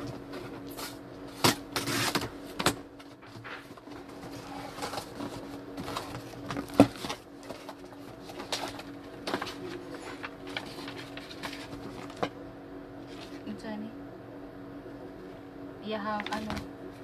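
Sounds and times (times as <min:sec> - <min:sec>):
cardboard crackling and scraping: 0:00.0 - 0:12.3
steady low hum: 0:00.0 - 0:17.0
packing tape tearing: 0:00.7 - 0:03.6.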